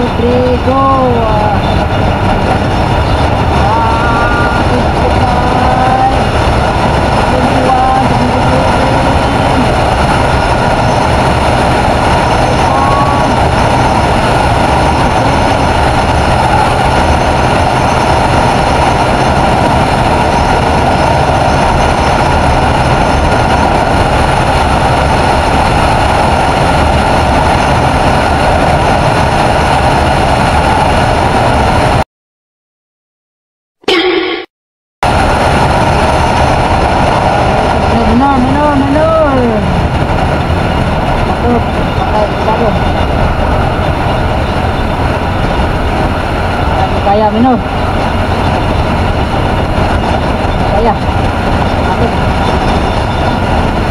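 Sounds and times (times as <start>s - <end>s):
scooter engine at full throttle: 0.0s - 32.0s
wind rush on microphone: 0.0s - 32.0s, 35.0s - 53.9s.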